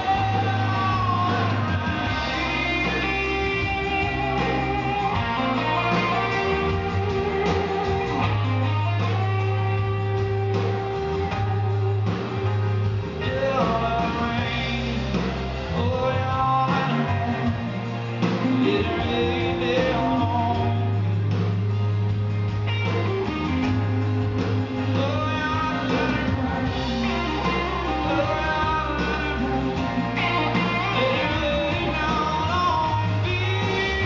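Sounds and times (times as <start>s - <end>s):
man singing lead vocal: 0.0s - 8.3s, 13.1s - 21.2s, 23.6s - 34.0s
live country-rock band playing: 0.0s - 34.0s
strummed acoustic guitar: 0.0s - 34.0s.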